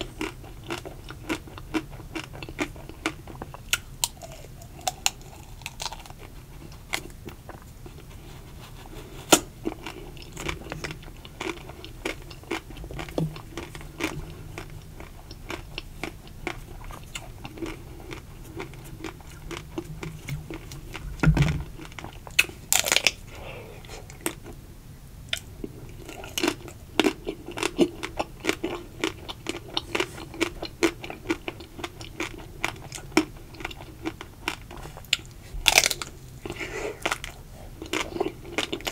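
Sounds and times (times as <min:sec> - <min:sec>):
chocolate shell crunching: 0:00.2 - 0:06.3, 0:21.8 - 0:23.2, 0:25.4 - 0:38.9.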